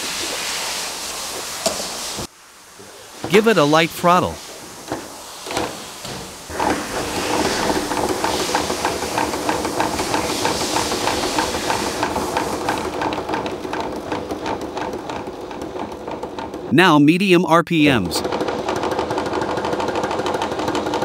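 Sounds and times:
compressor pistons clicking clatter: 6.5s - 16.7s.

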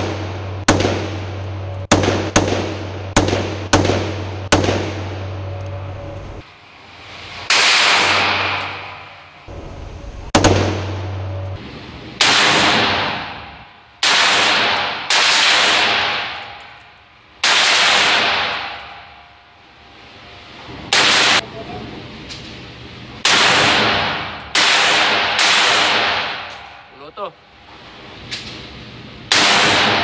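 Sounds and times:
gunfire echo: 0.0s - 5.2s, 7.5s - 9.3s, 10.3s - 11.1s, 12.2s - 16.7s, 17.4s - 19.2s, 20.9s - 21.4s, 23.2s - 26.9s, 29.3s - 30.0s
automatic rifle fire bursts: 12.2s - 13.4s, 14.0s - 16.4s, 17.4s - 18.8s, 23.2s - 26.5s, 29.3s - 30.0s.

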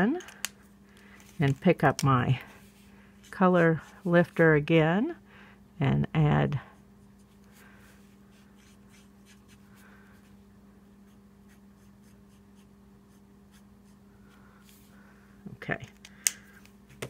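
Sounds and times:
steady low hum: 0.0s - 17.0s
marker scratching on paper: 11.5s - 14.0s.

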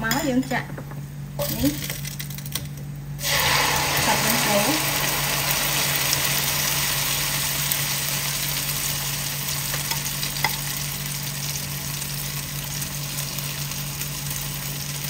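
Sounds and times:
egg sizzling in hot oil: 3.2s - 15.0s.

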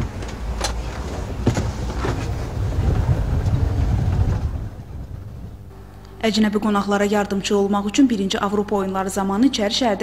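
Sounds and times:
wind on microphone: 0.0s - 5.8s
rumbling car ride noise: 0.0s - 5.9s.

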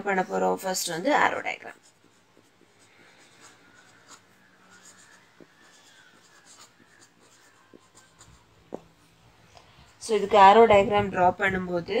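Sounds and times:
pen scratching on paper: 0.8s - 8.8s.

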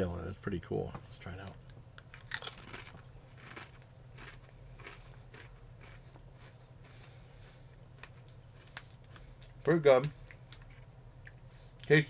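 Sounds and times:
tortilla chip crunching: 2.1s - 6.5s.

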